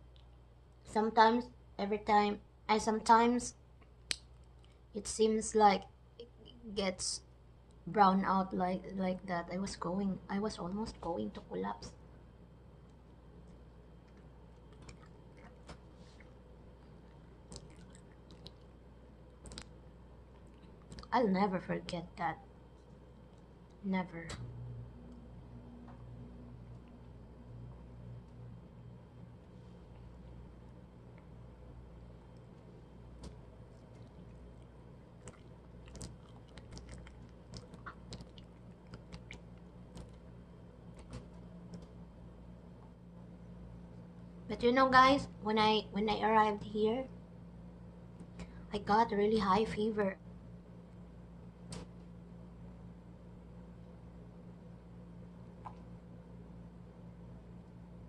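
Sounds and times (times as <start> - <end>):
low steady hum: 0.0 - 58.0
faint chewing with wet mouth clicks: 3.8 - 4.8, 13.4 - 21.1, 32.3 - 40.2, 55.6 - 55.9
wet mouth clicks: 17.1 - 18.7, 35.2 - 40.1, 55.6 - 55.9.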